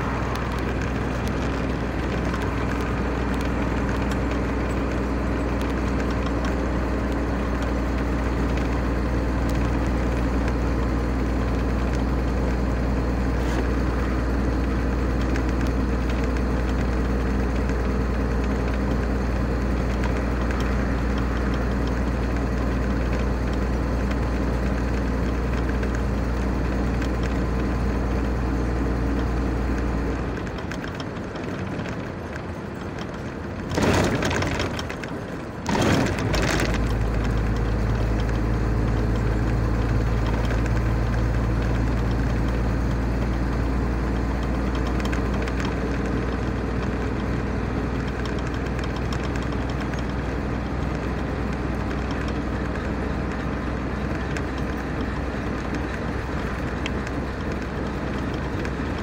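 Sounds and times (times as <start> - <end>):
car interior road drone: 0.0 - 59.0.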